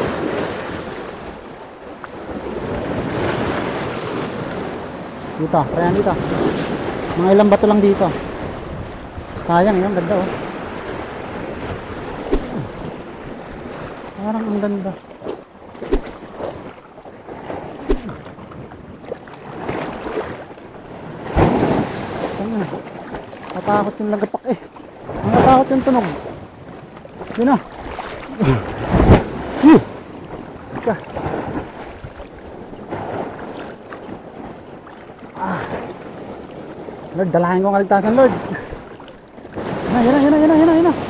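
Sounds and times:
wind buffeting microphone: 0.0 - 23.8
rough sea washing against rocks: 0.0 - 41.0.

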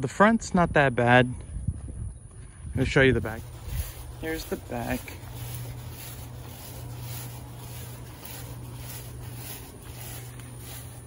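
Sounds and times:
outdoor background noise: 0.0 - 11.0
low hum: 2.2 - 11.0.

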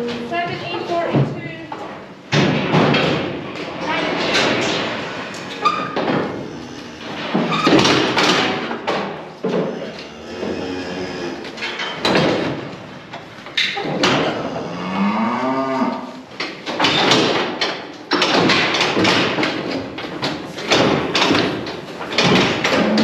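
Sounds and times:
bullock mooing: 9.7 - 11.5, 14.2 - 16.2.

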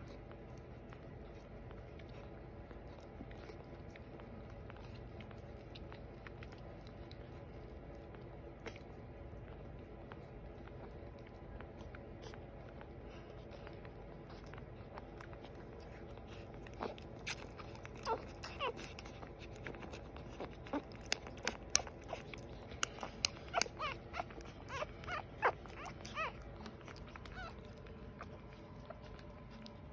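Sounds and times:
wet suckling clicks: 0.1 - 29.9
puppies squeaking and whimpering: 15.4 - 29.9.

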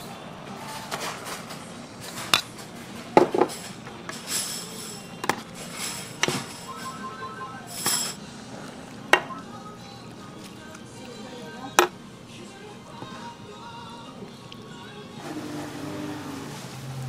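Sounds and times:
utensils clinking against dishes: 0.7 - 6.7.

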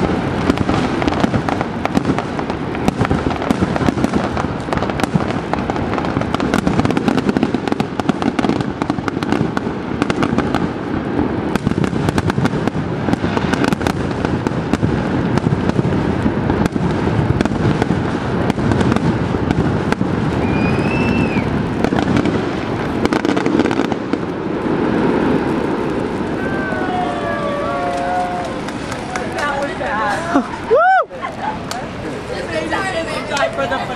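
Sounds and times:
fireworks crackling and popping: 0.0 - 33.9
firework whistle: 19.9 - 22.3, 24.7 - 29.1.

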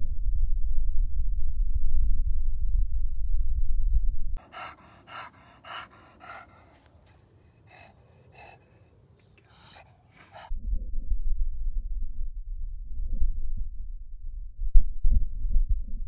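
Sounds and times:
dog panting: 4.4 - 10.5.

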